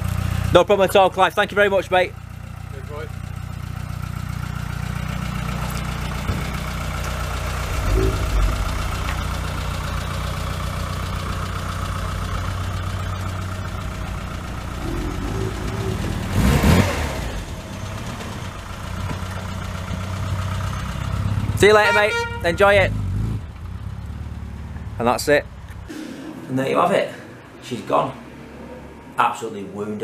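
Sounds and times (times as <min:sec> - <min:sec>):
car engine running at low revs: 0:02.2 - 0:21.6.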